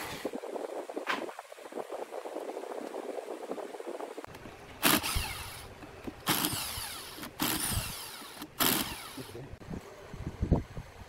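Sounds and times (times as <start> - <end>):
power drill driving screws: 4.8 - 9.4.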